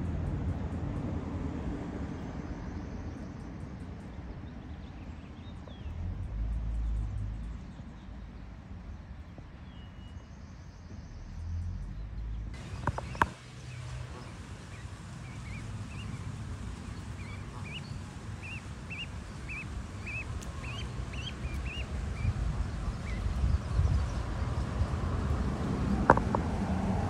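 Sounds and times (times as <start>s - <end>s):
steady low rumble: 0.0s - 27.0s
goslings peeping: 12.6s - 24.8s.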